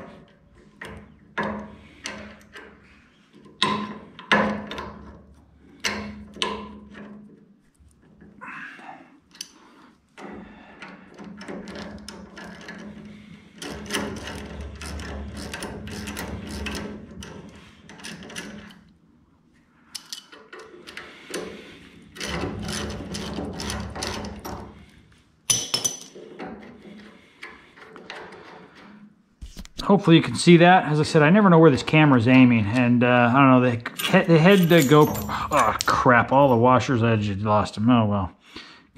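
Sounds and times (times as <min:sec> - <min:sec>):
sharp metal clink: 0:33.9 - 0:36.5.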